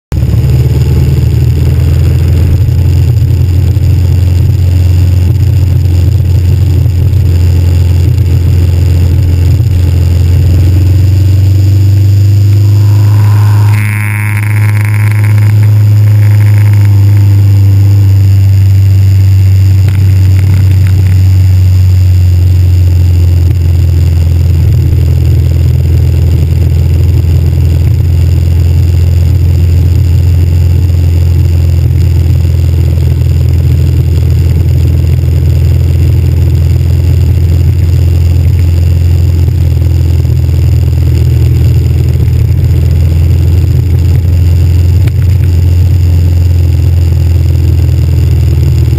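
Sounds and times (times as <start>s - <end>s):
motorcycle engine rumble: 0.1s - 48.9s.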